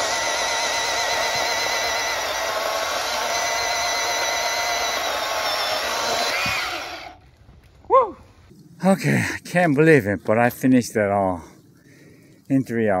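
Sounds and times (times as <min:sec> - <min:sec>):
electric chainsaw cutting wood: 0:00.0 - 0:07.2.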